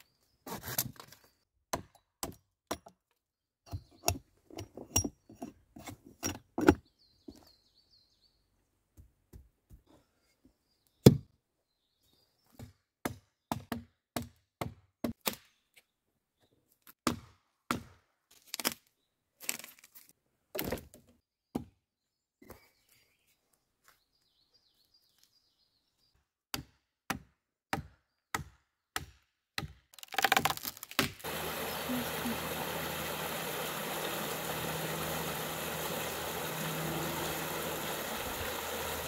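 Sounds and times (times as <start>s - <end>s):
hatchet chopping wood: 1.7s - 3.0s, 11.0s - 11.2s, 12.6s - 15.4s, 17.0s - 18.1s, 26.5s - 31.3s.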